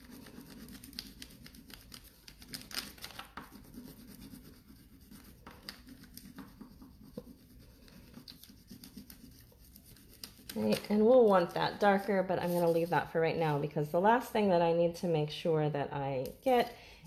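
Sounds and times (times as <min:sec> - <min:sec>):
wax crayon scratching on paper: 0:00.0 - 0:13.2.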